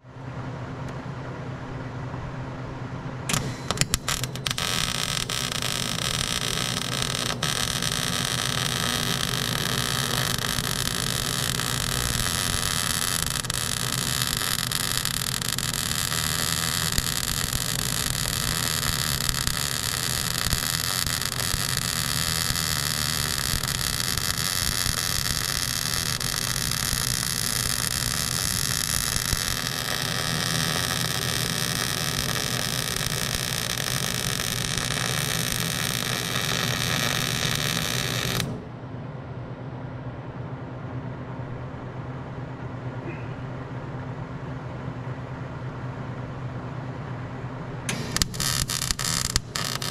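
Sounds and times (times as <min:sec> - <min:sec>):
arc welding hiss: 0:03.3 - 0:38.6, 0:47.9 - 0:49.9.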